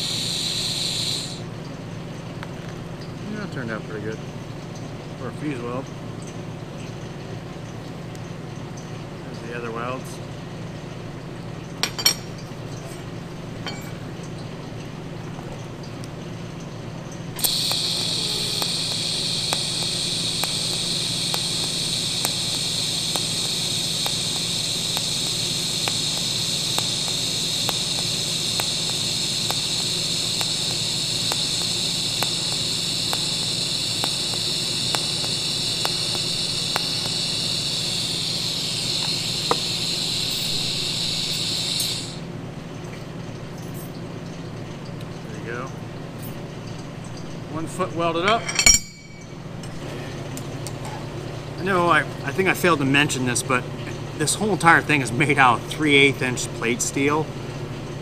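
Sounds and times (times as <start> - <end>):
welding arc hissing: 0.0 - 1.5, 17.3 - 42.3
low hum: 17.3 - 42.2
faint evenly spaced ticks: 17.4 - 42.2.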